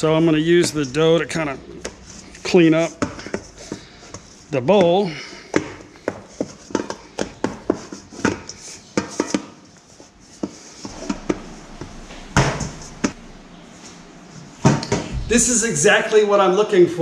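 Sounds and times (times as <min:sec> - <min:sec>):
dough knocking against bowl: 0:03.0 - 0:09.6.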